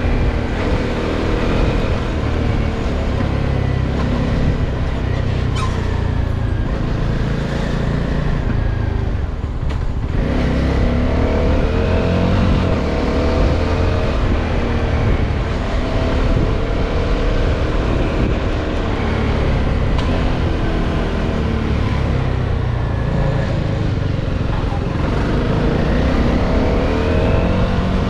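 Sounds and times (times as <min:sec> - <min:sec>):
motorcycle engine accelerating: 0:00.0 - 0:28.0.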